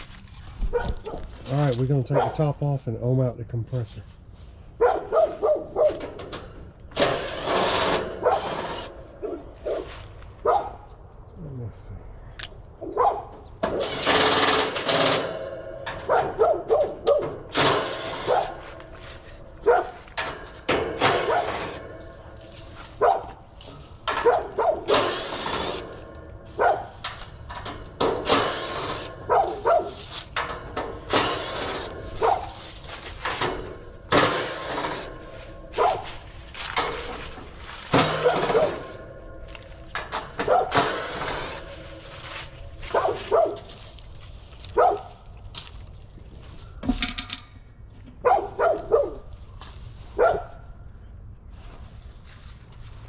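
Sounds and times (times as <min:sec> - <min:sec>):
dog barking: 0:00.7 - 0:01.3, 0:02.1 - 0:02.4, 0:04.8 - 0:06.0, 0:09.2 - 0:10.8, 0:12.8 - 0:13.3, 0:16.1 - 0:17.3, 0:19.6 - 0:20.0, 0:21.2 - 0:21.6, 0:23.0 - 0:23.4, 0:24.2 - 0:24.9, 0:26.6 - 0:26.9, 0:29.3 - 0:30.0, 0:32.2 - 0:32.6, 0:35.8 - 0:36.1, 0:38.2 - 0:38.9, 0:40.4 - 0:40.8, 0:42.9 - 0:43.7, 0:44.8 - 0:45.2, 0:48.2 - 0:49.3, 0:50.2 - 0:50.6.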